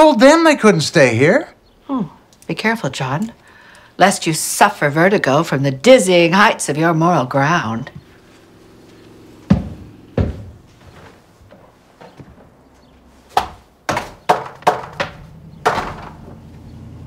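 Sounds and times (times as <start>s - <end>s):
dull thumps: 7.9s - 16.6s
sharp knocks: 9.4s - 10.7s, 13.3s - 16.4s.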